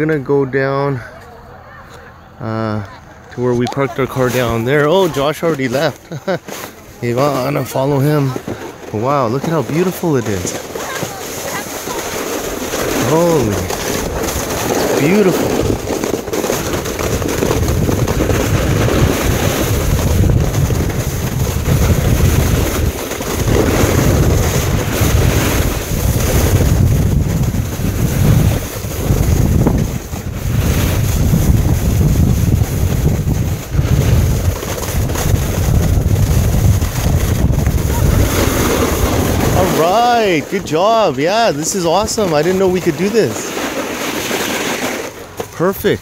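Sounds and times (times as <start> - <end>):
snowboard sliding over snow: 3.4 - 46.0
wind on microphone: 16.8 - 40.7.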